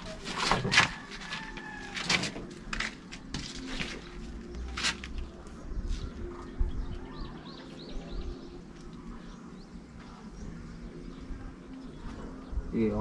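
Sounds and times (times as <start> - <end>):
birds chirping: 3.2 - 13.0.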